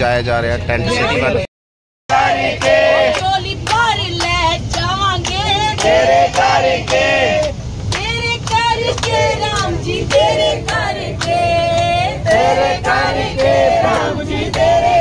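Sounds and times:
low steady rumble: 0:02.1 - 0:15.0
voices singing devotional song: 0:02.1 - 0:15.0.

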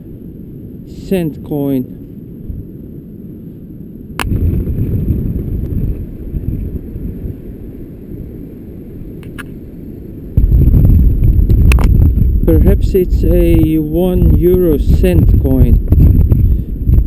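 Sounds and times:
wind buffeting microphone: 0:00.0 - 0:17.0
sharp click: 0:09.2 - 0:09.6, 0:11.6 - 0:12.0.

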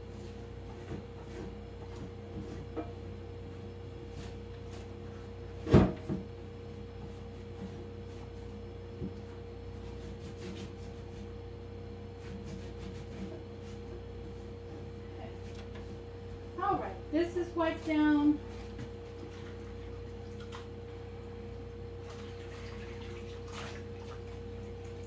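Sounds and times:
steady hum: 0:00.0 - 0:25.0.

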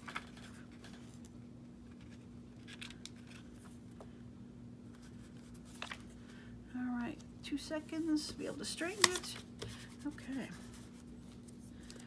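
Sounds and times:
paper rustling and clicking: 0:00.0 - 0:01.4, 0:08.9 - 0:09.8
steady low hum: 0:00.0 - 0:12.0.

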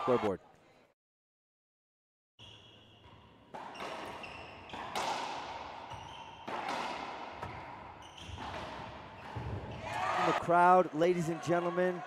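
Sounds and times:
racquetball striking and echoing: 0:02.4 - 0:10.0.

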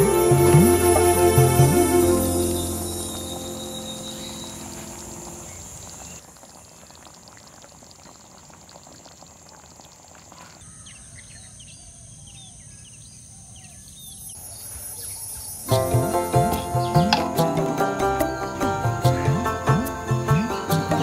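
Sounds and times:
soft music: 0:00.0 - 0:06.1, 0:15.7 - 0:21.0
birds singing: 0:00.0 - 0:06.2, 0:10.5 - 0:21.0
high insect drone: 0:00.0 - 0:06.2, 0:09.1 - 0:21.0
crackling hiss: 0:00.0 - 0:21.0.

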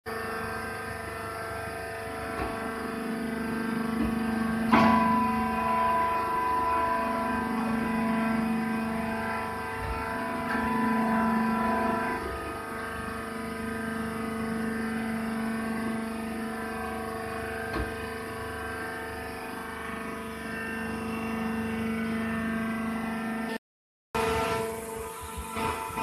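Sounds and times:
hydraulic pump motor humming: 0:00.1 - 0:23.6, 0:24.2 - 0:26.0.

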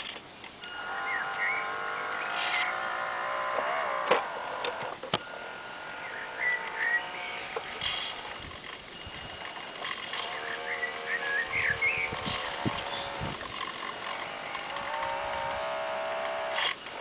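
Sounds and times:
electric motor whining: 0:00.6 - 0:17.0
sharp clicks: 0:03.5 - 0:05.3.

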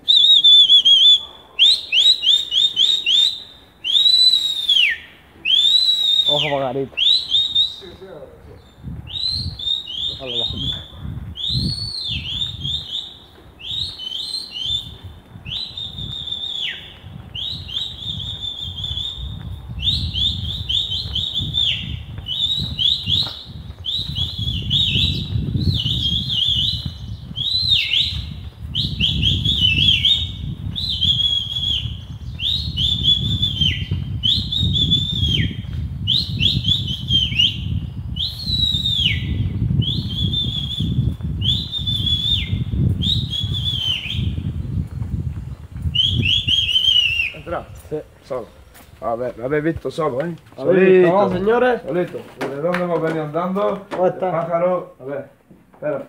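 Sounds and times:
goldfinch whistled calls: 0:08.6 - 0:44.4
footsteps on cobblestones: 0:08.9 - 0:36.7, 0:39.9 - 0:46.9, 0:47.8 - 0:54.6.

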